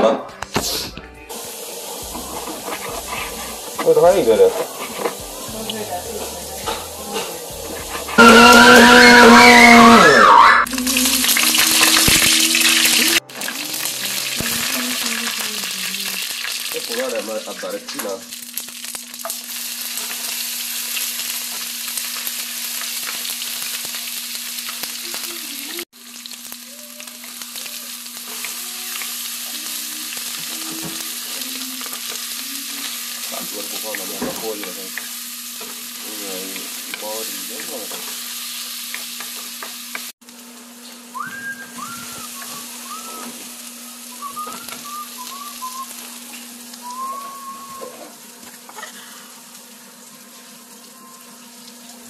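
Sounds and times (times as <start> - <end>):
food sizzling in hot oil: 0.6 - 52.0
wooden spatula scraping wok: 2.0 - 9.0.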